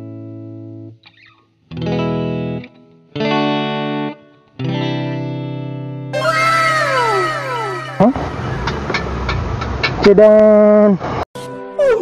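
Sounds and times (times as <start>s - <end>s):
distorted electric guitar chords: 3.2s - 9.6s.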